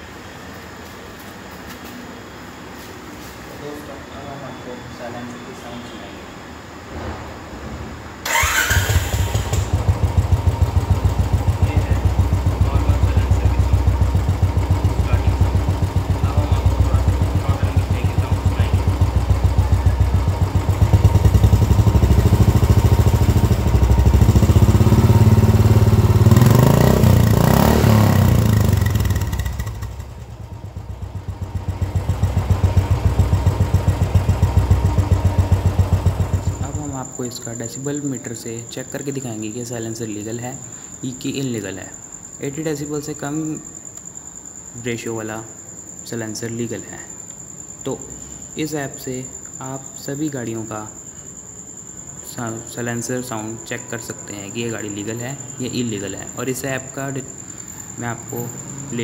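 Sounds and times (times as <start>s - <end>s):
motorcycle engine idling and revving: 8.2s - 37.2s, 57.4s - 59.0s.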